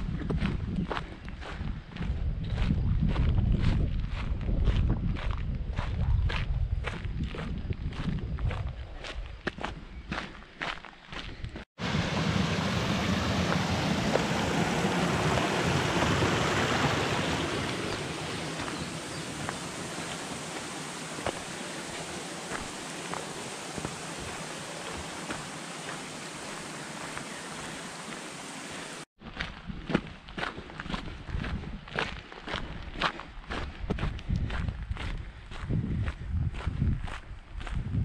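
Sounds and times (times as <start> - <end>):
footsteps on gravel: 2.7 - 11.7, 13.4 - 28.3, 29.2 - 37.8
rushing water: 11.8 - 29.1.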